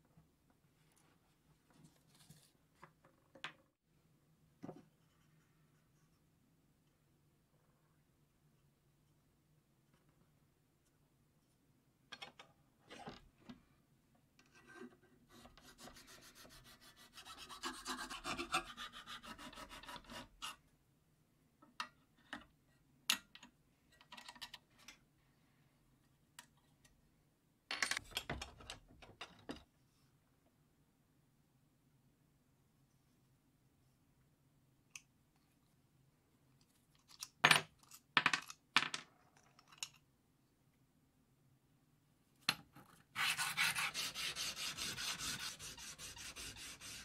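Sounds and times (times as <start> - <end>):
file strokes on metal: 14.5 - 20.6, 43.2 - 47.0.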